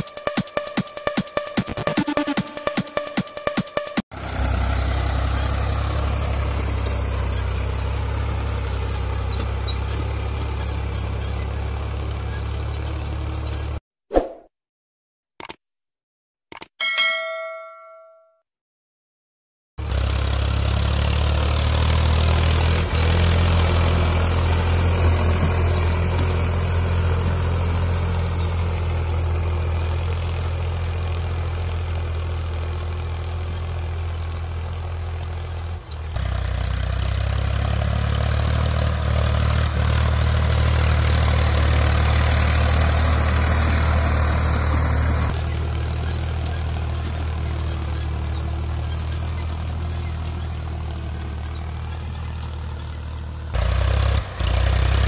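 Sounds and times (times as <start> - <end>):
tractor engine running: 0.0 - 13.8, 19.8 - 55.0
notification bell chime: 16.8 - 18.4.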